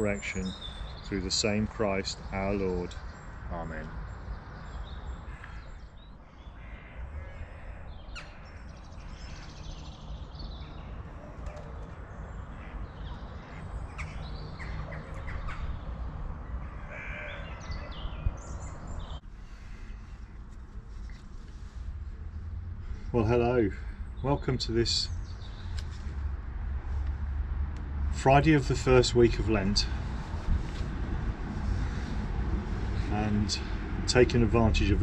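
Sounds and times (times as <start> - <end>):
birds calling harshly: 0.0 - 27.0, 28.2 - 35.0
wind rumble on microphone: 11.8 - 19.2, 25.1 - 35.0.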